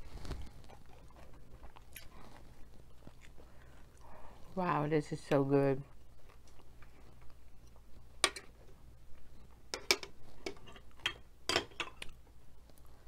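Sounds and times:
chewing crisp chips: 0.0s - 4.6s, 5.8s - 8.2s.

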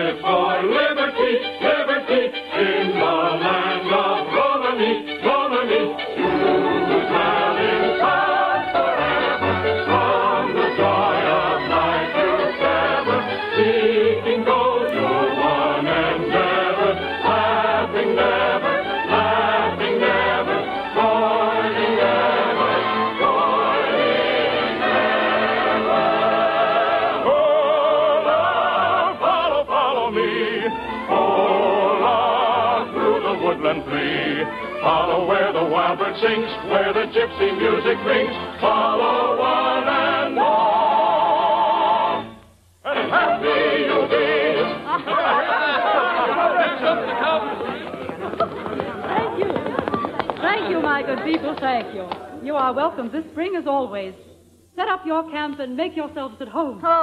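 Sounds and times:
orchestral accompaniment: 0.0s - 42.3s
choir singing: 0.0s - 48.0s.

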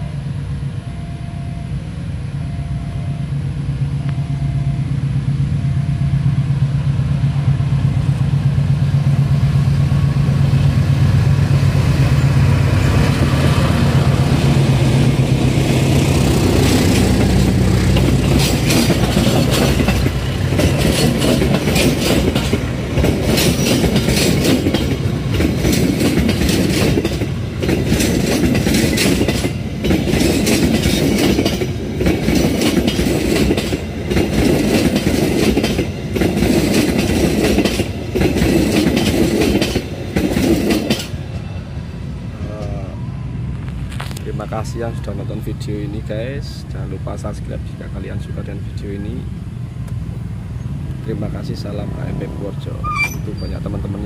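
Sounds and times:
diesel locomotive rumble: 0.0s - 54.0s
train wheels clicking on rails: 7.4s - 41.5s.

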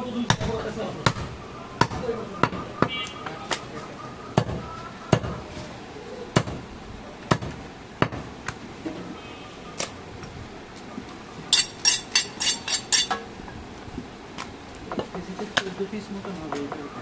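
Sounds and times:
knife chopping meat and bone: 4.4s - 5.4s.

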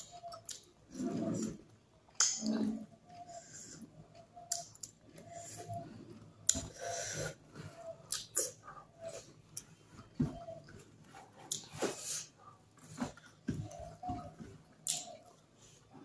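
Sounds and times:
person chewing and lip smacking: 0.0s - 0.8s, 2.1s - 2.5s, 4.1s - 5.3s, 8.0s - 8.8s, 11.5s - 11.7s, 14.8s - 15.4s.

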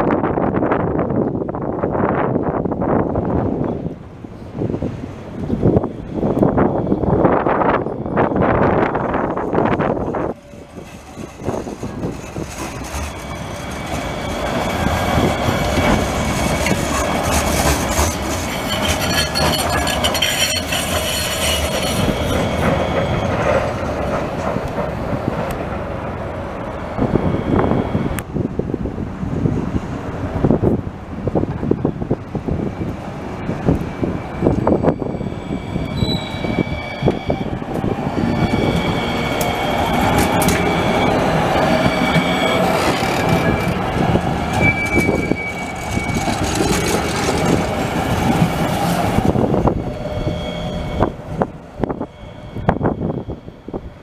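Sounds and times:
trams rumbling on rails: 0.0s - 54.0s
high-pitched whining tones: 5.8s - 24.0s, 34.2s - 54.0s
wheel squeal: 10.1s - 24.1s, 34.4s - 54.0s.

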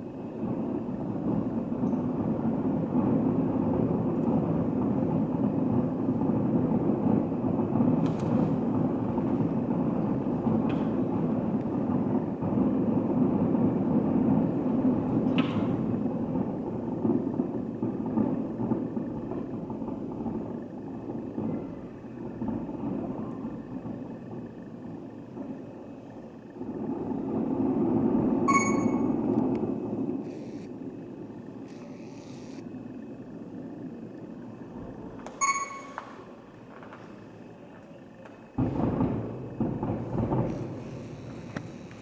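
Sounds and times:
distant fireworks rumble: 0.0s - 42.0s
sharp firework cracks: 0.0s - 42.0s.

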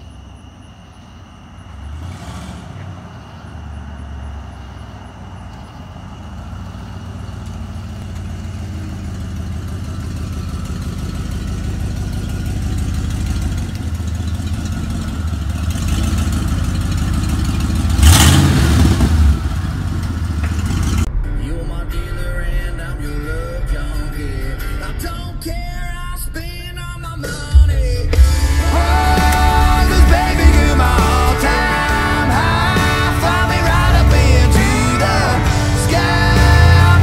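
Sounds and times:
pickup truck engine rumbling: 0.0s - 37.0s.

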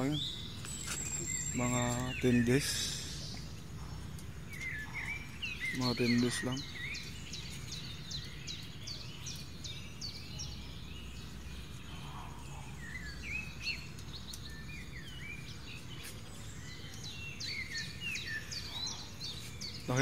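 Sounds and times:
rising and falling bird calls: 0.0s - 20.0s
small birds chirping: 0.0s - 20.0s.

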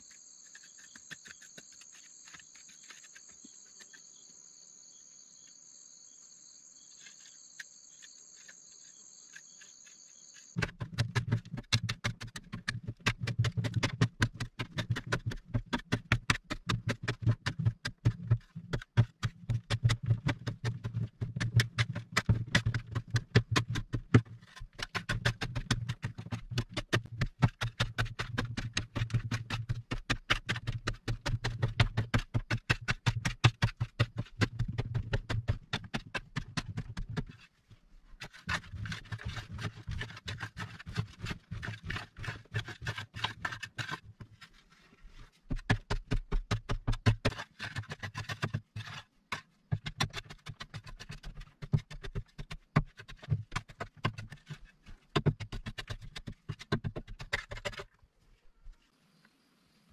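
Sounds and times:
loose soil crumbling: 0.0s - 4.2s, 7.0s - 45.8s
tool scraping earth wall: 0.0s - 4.3s, 6.8s - 58.0s.

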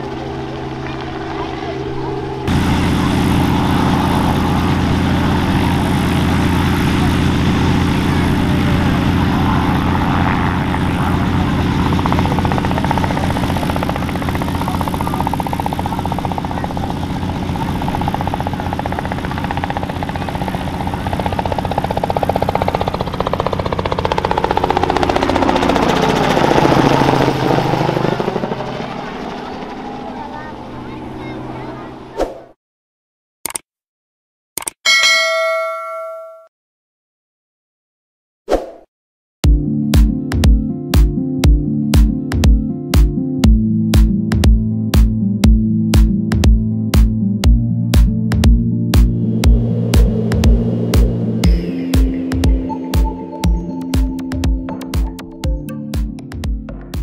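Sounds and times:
helicopter rotor and engine drone: 0.0s - 32.2s, 45.4s - 57.0s.

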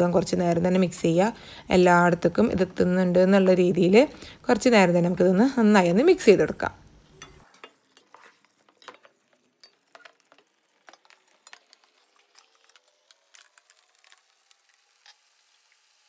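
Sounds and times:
utensil stirring in a pan: 6.2s - 15.8s.

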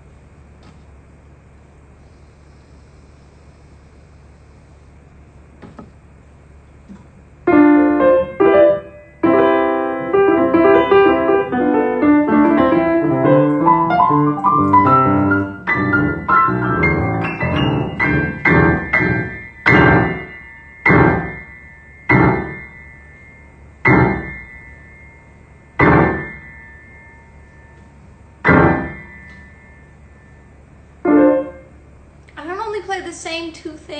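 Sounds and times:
piano chords and notes: 7.5s - 31.8s.

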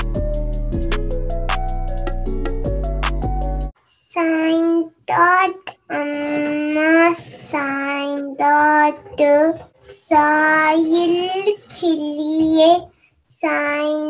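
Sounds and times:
boy singing unaccompanied: 4.5s - 14.0s.

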